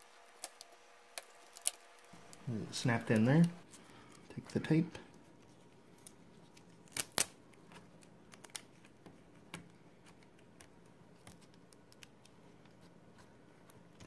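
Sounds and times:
faint rustling of tape: 0.0s - 14.0s.

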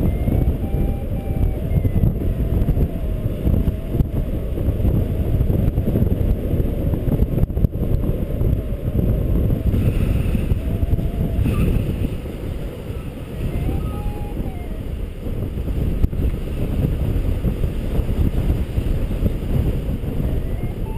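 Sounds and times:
faint high tones: 0.0s - 4.1s, 12.9s - 15.0s, 20.3s - 20.9s
wind buffeting microphone: 0.0s - 20.9s.

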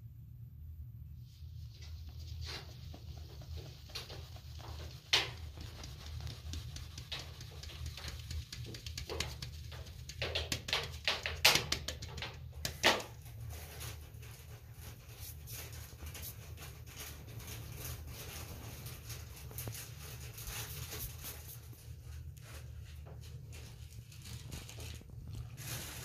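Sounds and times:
sieve knocking and rattling: 2.4s - 21.6s.

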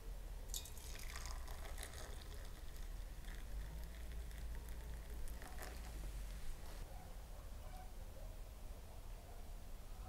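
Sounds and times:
coffee pouring into a glass cup: 0.5s - 6.8s.

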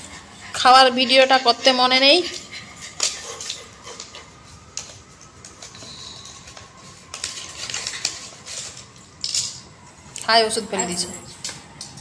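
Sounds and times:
blister pack crinkling and clicking: 4.7s - 10.3s.

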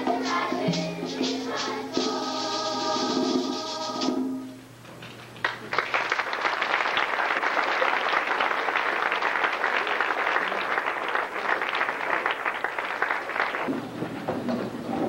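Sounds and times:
audience applauding: 5.3s - 14.2s.

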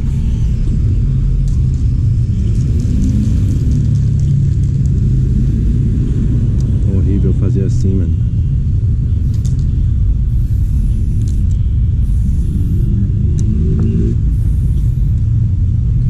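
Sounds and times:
low rumble: 0.0s - 16.0s
spray-paint can hissing: 10.3s - 13.1s, 14.2s - 15.2s.

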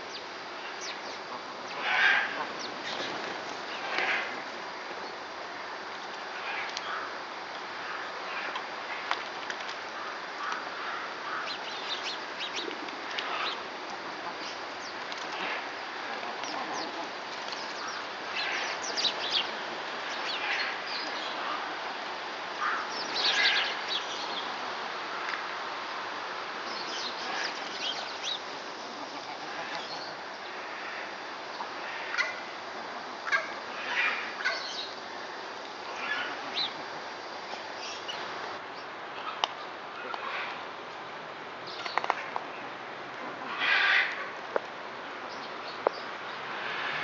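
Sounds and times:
background hiss: 0.0s - 47.0s
birds calling: 14.3s - 21.7s, 26.6s - 32.6s.

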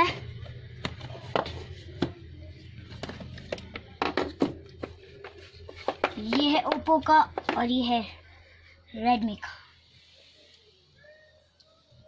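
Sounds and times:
phones tapping against boxes: 2.9s - 7.7s.

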